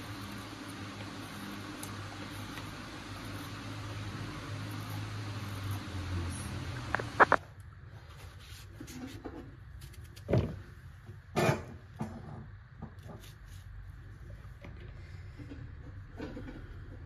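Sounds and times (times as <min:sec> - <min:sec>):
knife cutting and scraping gourd: 0:13.0 - 0:13.8.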